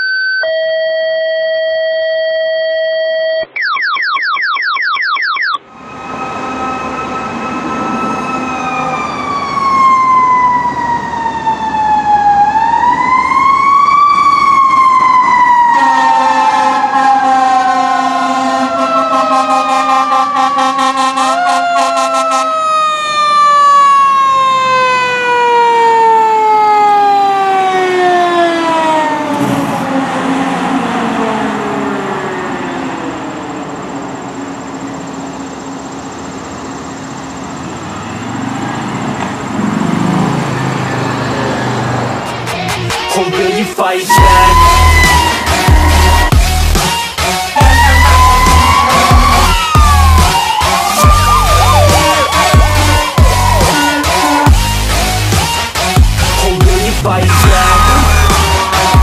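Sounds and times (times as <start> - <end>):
fire engine siren wailing: 5.6 - 42.3, 43.0 - 59.0
horn sounding: 15.6 - 22.7, 43.1 - 59.0
rising chirps: 31.4 - 39.2, 44.1 - 47.0, 47.6 - 55.6, 56.2 - 59.0.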